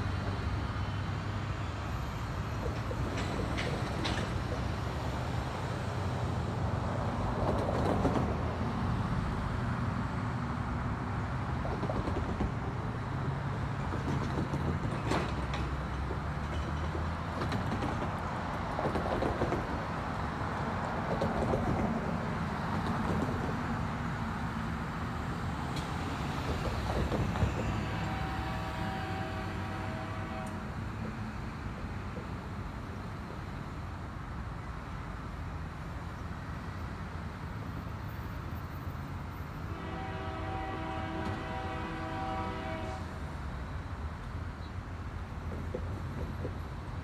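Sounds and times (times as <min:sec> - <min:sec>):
distant train rumble: 0:00.0 - 0:09.6, 0:11.0 - 0:47.0
locomotive air horn chord: 0:27.5 - 0:30.8, 0:39.6 - 0:43.2.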